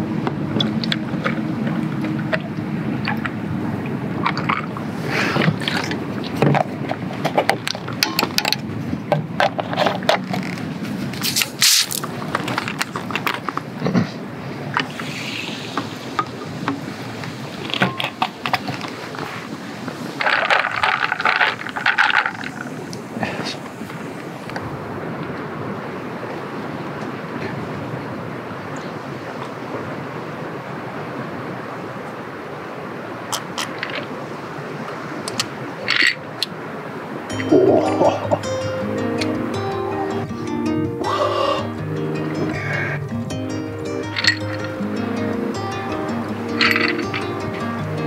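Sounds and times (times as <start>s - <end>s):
short sharp hiss: 11.2s - 12.0s
ice and glass clinking: 44.1s - 44.8s, 46.6s - 47.4s.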